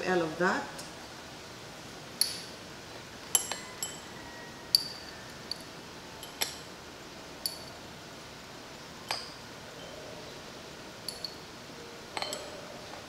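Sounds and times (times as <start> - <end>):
glassware clinking: 3.3 - 4.1, 4.7 - 5.1, 11.1 - 11.5, 12.1 - 12.6.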